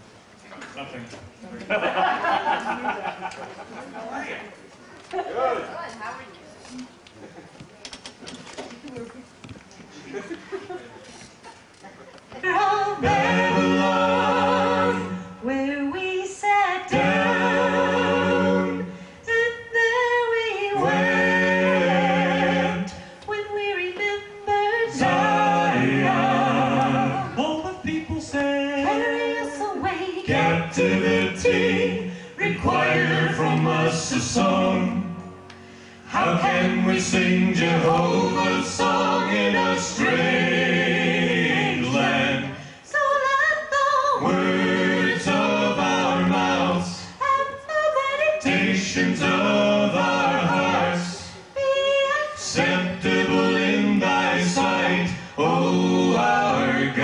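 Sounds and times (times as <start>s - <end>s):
group singing in harmony: 12.4s - 57.0s.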